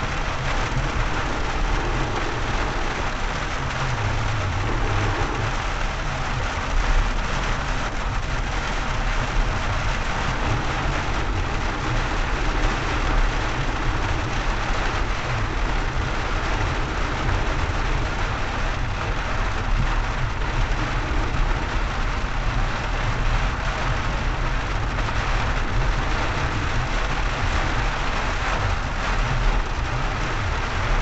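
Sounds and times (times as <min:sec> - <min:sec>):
engine and tyre rumble: 0:00.0 - 0:31.0
rain hiss: 0:00.0 - 0:31.0.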